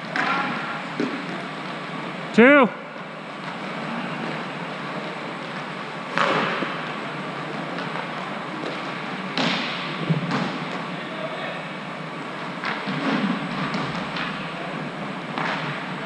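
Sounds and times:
steady noisy background: 0.0s - 16.0s.

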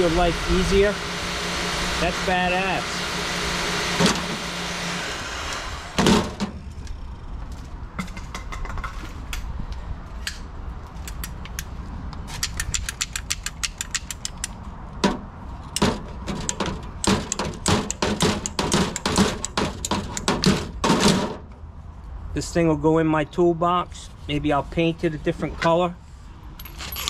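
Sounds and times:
heat gun fan winding down: 0.0s - 6.1s
small metal parts clicking and rattling: 12.3s - 14.6s.

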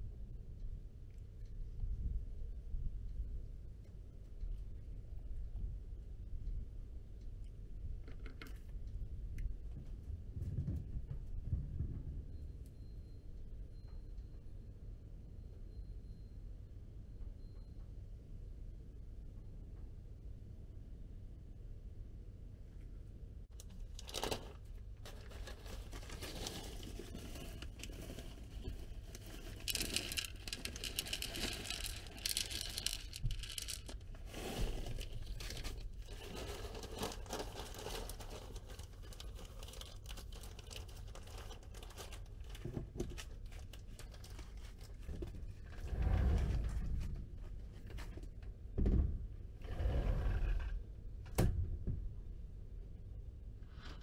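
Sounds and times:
plastic bag crinkling: 23.7s - 45.1s
kibble pouring onto tray: 25.2s - 38.6s.

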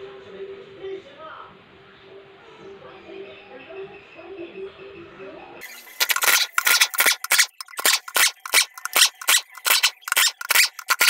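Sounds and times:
hand tool scraping metal case: 5.7s - 11.0s.

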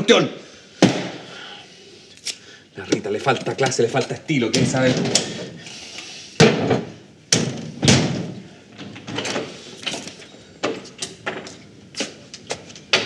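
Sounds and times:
loud sharp knocks: 0.8s - 1.2s.

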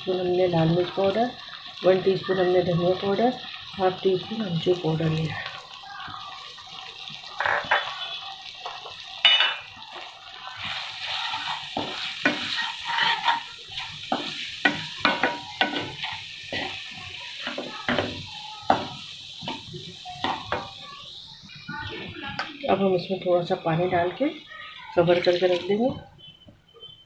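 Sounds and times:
sizzling in oil: 0.0s - 26.3s
spatula scraping a pan: 7.4s - 8.9s, 10.6s - 19.6s.

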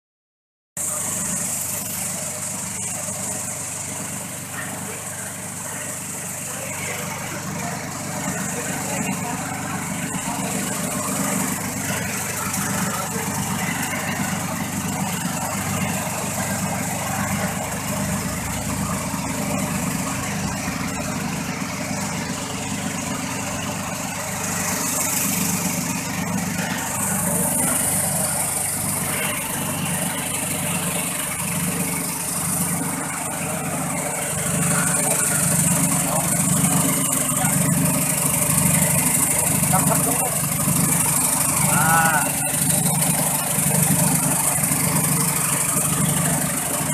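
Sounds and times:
sorting machine vibrating sieve: 0.8s - 46.9s.

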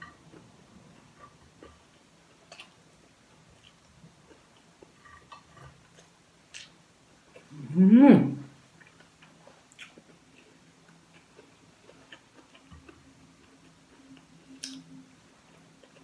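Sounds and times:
soft chewing: 0.0s - 7.8s, 8.5s - 16.0s
faint steady hum: 0.0s - 16.0s
person humming mm: 7.5s - 8.5s.

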